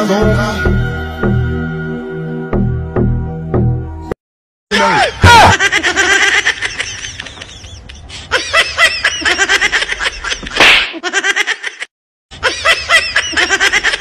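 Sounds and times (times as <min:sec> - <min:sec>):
person laughing: 0:04.8 - 0:14.0.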